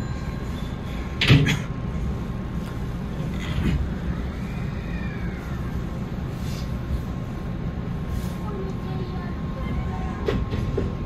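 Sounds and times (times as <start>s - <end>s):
electric train rumbling on rails: 0.0s - 11.0s.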